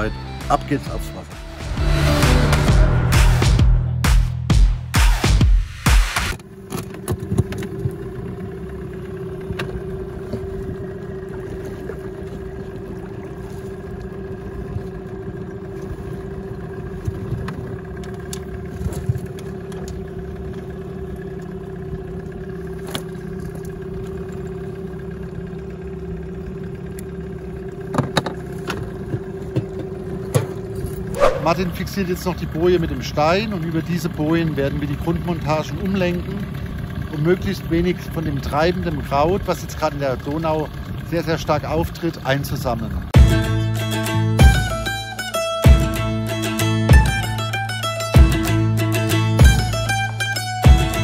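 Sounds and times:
small outboard motor running: 0.0 - 3.2, 6.3 - 51.0.

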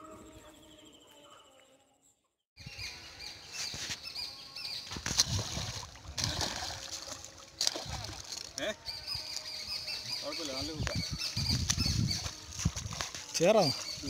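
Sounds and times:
faint birdsong: 0.0 - 5.8, 7.7 - 12.5, 13.4 - 14.0
fish thrashing and splashing: 4.9 - 8.6.

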